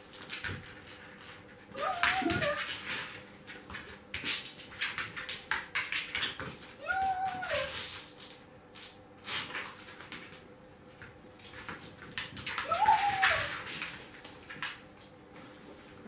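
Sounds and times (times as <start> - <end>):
dog whining: 1.6 - 2.7, 6.8 - 7.9, 12.6 - 13.6.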